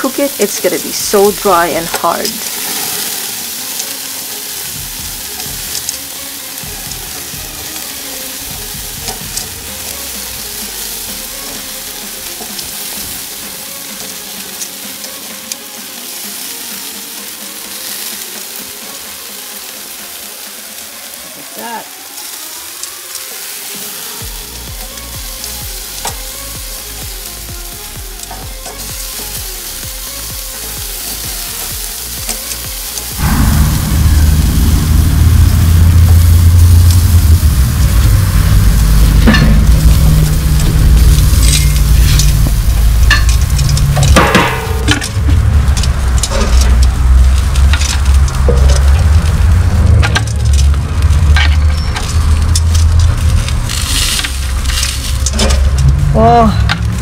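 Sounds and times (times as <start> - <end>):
meat sizzling on grill: 0.0 - 57.0
loud low rumble: 33.2 - 57.0.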